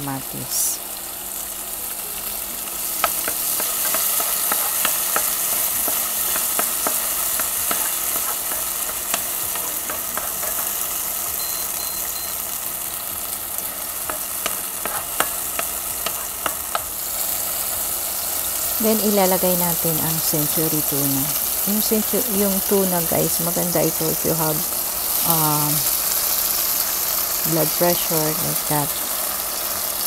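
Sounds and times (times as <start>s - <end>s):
vegetables sizzling in oil: 0.0s - 30.0s
wooden spoon stirring in pan: 3.0s - 11.3s, 13.6s - 18.0s.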